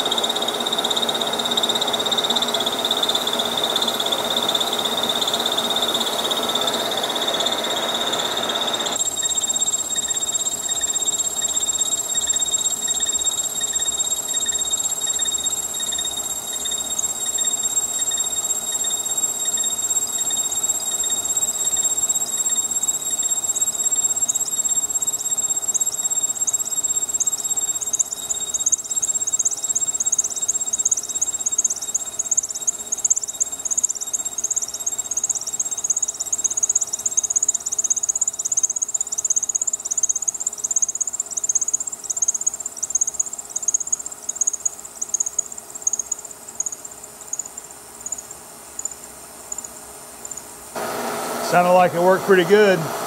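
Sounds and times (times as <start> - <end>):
milling cutter whine: 0.0 - 30.4, 50.8 - 53.0
high-pitched cutting squeal: 4.8 - 29.2.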